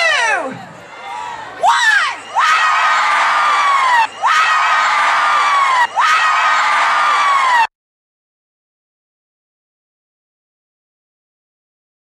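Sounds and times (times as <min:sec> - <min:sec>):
crowd cheering and screaming: 0:00.7 - 0:07.7
long held scream: 0:01.2 - 0:07.7
high-pitched whoops: 0:01.6 - 0:07.7.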